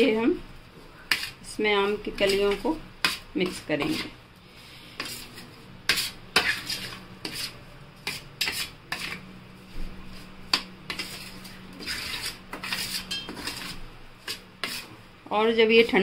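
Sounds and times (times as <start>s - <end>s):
spoon scraping steel plate: 5.0s - 9.2s, 10.5s - 14.9s.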